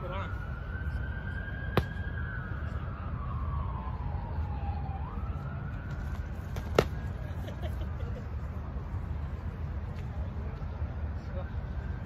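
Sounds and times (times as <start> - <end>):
distant siren wailing: 0.0 - 7.2, 11.4 - 12.0.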